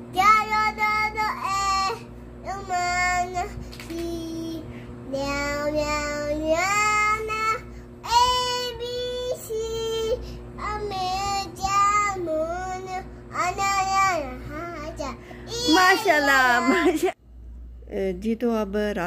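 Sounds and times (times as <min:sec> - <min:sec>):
girl singing high notes: 0:13.5 - 0:17.0.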